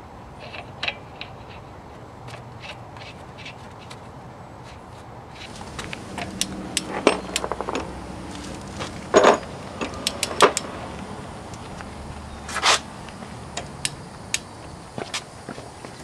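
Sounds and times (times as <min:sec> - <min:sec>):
metal knocks: 0:05.5 - 0:08.0, 0:08.7 - 0:10.7
torque wrench ratchet clicks: 0:09.8 - 0:10.7.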